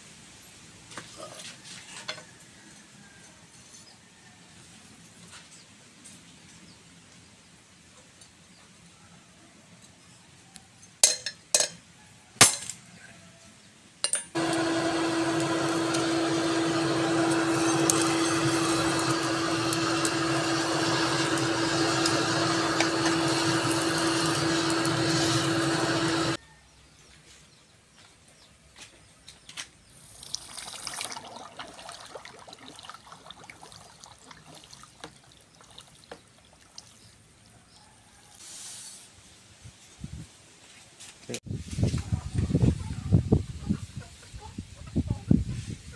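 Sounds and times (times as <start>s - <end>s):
electric blower whirring: 14.4s - 26.4s.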